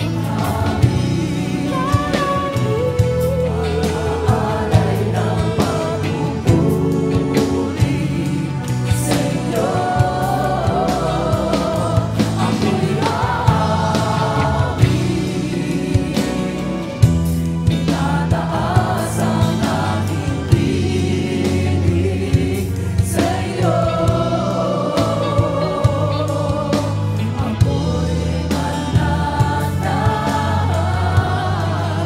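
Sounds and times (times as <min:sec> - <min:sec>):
singer with vibrato: 0:00.0 - 0:17.0
band bass and drums: 0:00.0 - 0:32.0.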